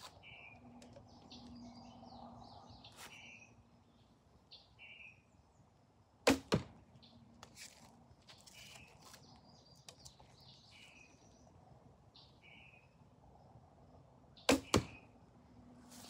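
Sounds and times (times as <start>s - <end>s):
birds chirping: 0.0s - 5.8s, 8.3s - 13.1s
arrow hitting target: 6.2s - 6.8s, 14.5s - 15.0s.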